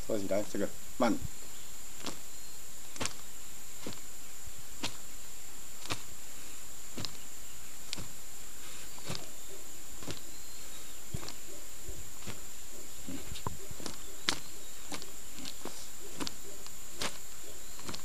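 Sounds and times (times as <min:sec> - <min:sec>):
hand strikes snapping: 0:07.9 - 0:08.1, 0:13.3 - 0:17.2.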